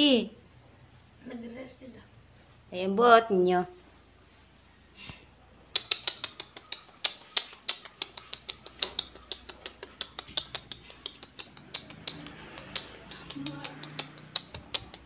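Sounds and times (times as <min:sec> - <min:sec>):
dog claws clicking on tile: 0:05.7 - 0:15.0.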